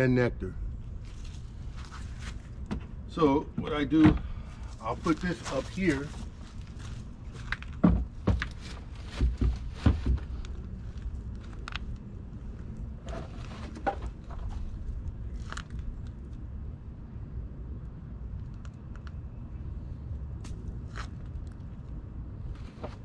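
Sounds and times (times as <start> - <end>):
steady low rumble: 0.0 - 23.0
knocks and clunks of hive box: 7.8 - 8.5.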